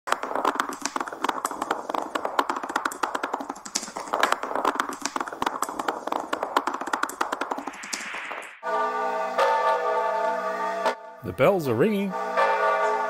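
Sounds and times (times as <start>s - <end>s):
rapid small clicks and taps: 0.1s - 8.6s.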